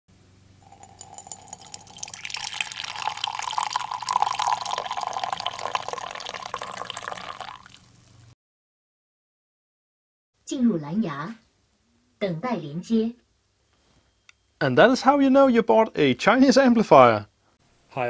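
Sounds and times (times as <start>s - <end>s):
coffee pouring into ceramic mug: 0.6s - 8.0s.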